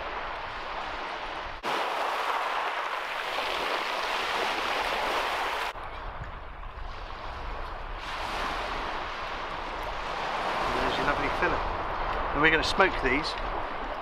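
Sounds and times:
waves washing onto shingle: 0:00.0 - 0:05.8, 0:06.9 - 0:14.0
low wind rumble: 0:05.4 - 0:14.0.

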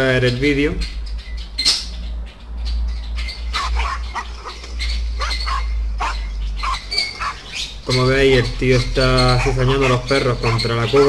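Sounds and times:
dogs barking: 0:02.4 - 0:11.0.

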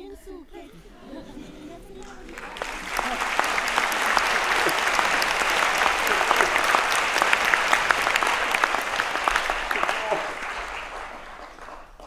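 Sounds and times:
audience applauding: 0:00.8 - 0:12.0.

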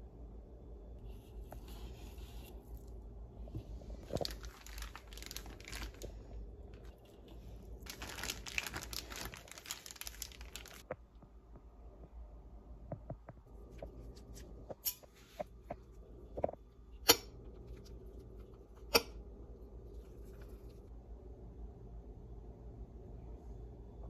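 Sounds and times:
plastic bag crinkling: 0:04.0 - 0:10.9.

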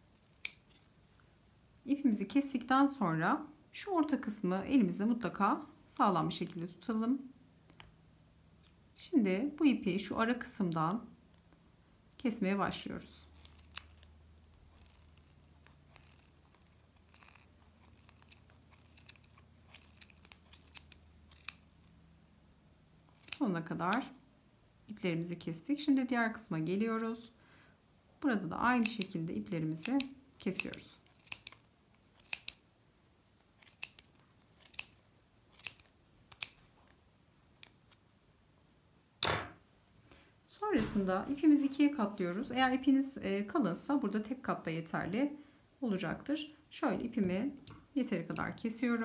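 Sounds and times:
scissors snipping yarn: 0:00.2 - 0:00.9, 0:13.0 - 0:21.7, 0:23.1 - 0:24.2, 0:28.6 - 0:32.6, 0:33.4 - 0:37.0, 0:37.6 - 0:38.0, 0:47.2 - 0:49.0.

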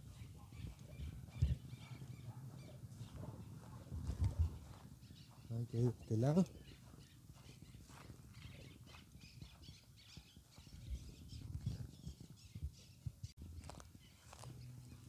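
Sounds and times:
footsteps through grass: 0:02.1 - 0:12.3, 0:13.4 - 0:15.0.

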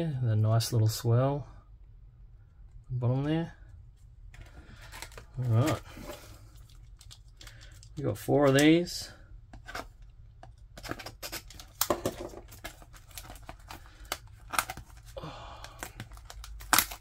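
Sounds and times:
shrink wrap crinkling and tearing: 0:04.7 - 0:08.6, 0:09.7 - 0:17.0.

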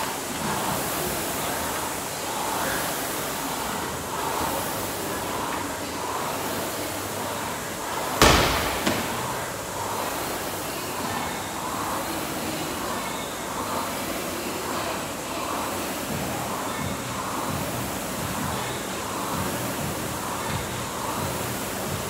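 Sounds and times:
gym background hiss: 0:00.0 - 0:22.0
heavy thud: 0:08.2 - 0:09.5.

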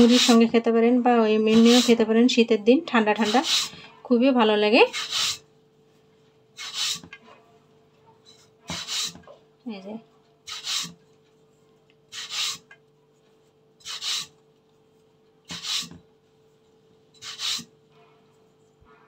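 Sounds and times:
hands rubbing dough: 0:00.0 - 0:00.6, 0:01.4 - 0:02.1, 0:03.0 - 0:03.8, 0:04.9 - 0:07.8, 0:08.5 - 0:09.2, 0:10.5 - 0:18.9.

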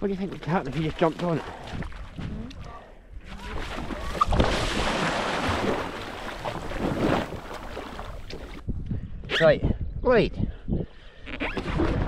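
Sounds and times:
water splashing and churning: 0:00.0 - 0:08.7.

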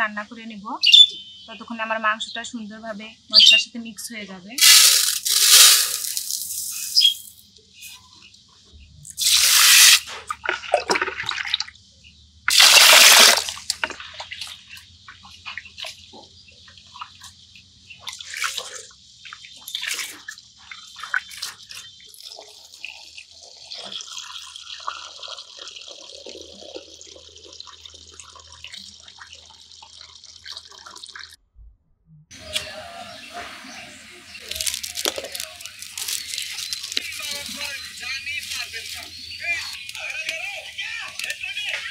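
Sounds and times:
rice pouring into water: 0:04.6 - 0:07.1, 0:09.2 - 0:10.0, 0:12.5 - 0:14.0, 0:34.3 - 0:39.6
water splashing: 0:09.2 - 0:11.8, 0:12.5 - 0:16.1, 0:16.7 - 0:31.4, 0:32.3 - 0:41.9
water sloshing and dripping: 0:09.2 - 0:11.9, 0:12.5 - 0:31.4, 0:33.4 - 0:41.8.

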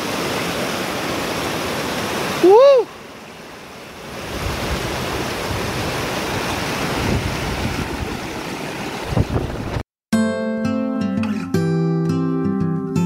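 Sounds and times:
stream rushing over rocks: 0:00.0 - 0:09.8
strummed acoustic guitar: 0:10.2 - 0:13.0.

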